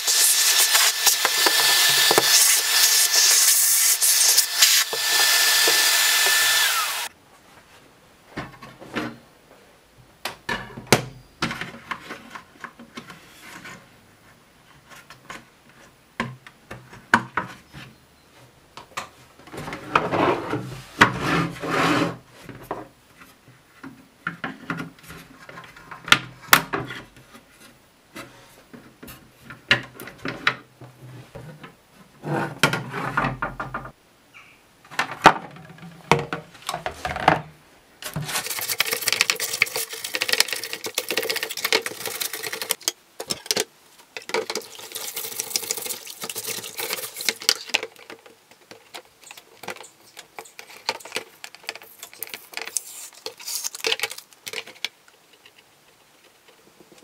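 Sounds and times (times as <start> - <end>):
stiff brush scrubbing plastic: 0.0 - 7.1, 38.0 - 43.6, 44.2 - 56.4.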